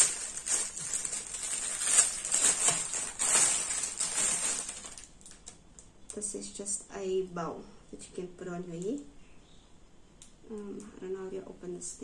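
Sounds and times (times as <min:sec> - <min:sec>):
plastic bag crinkling: 0:00.0 - 0:05.6.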